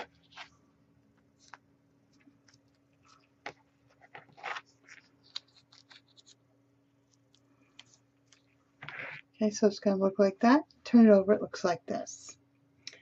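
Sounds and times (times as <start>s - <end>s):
faint steady hum: 0.0s - 13.0s
tape crinkling and rustling: 1.2s - 6.4s, 7.0s - 9.3s.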